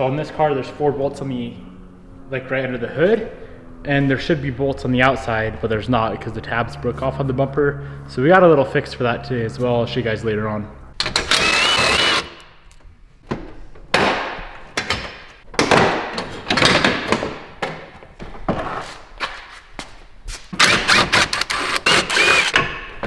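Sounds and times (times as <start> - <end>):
impact driver rattling: 11.0 - 12.5.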